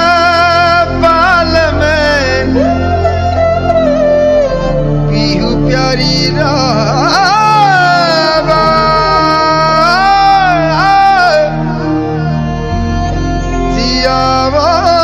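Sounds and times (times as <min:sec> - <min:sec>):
song with ornamented melody: 0:00.0 - 0:15.0.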